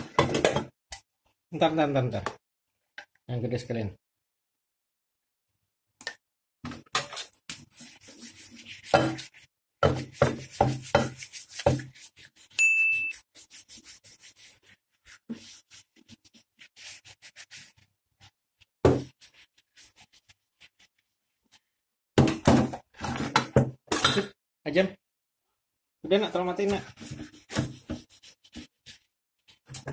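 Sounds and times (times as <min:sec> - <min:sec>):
short ringing ding: 0:12.6 - 0:13.2.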